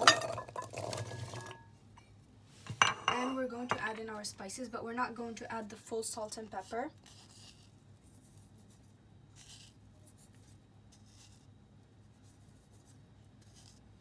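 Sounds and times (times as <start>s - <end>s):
low steady hum: 0.0s - 14.0s
faint rustles of sprinkling salt: 6.2s - 14.0s.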